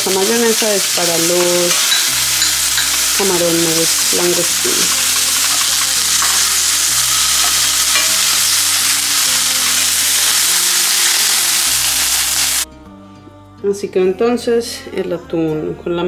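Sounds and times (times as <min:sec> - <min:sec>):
fish sizzling in a frying pan: 0:00.0 - 0:12.6.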